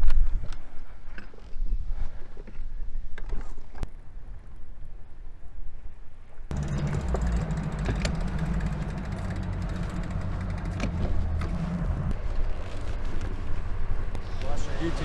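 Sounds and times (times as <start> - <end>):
pickup truck engine running: 6.5 - 12.4.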